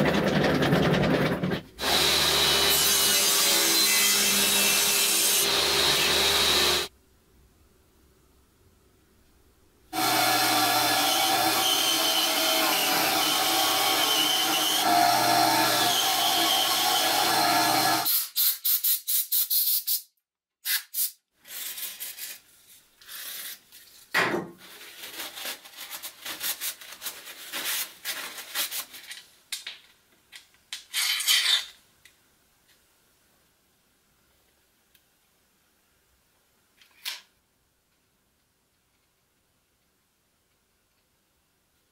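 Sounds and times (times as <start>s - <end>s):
power tool running: 1.8s - 3.1s, 5.2s - 6.9s, 10.0s - 18.1s
short hissy bursts: 18.1s - 21.7s
clicks and knocks of small parts: 36.8s - 37.3s.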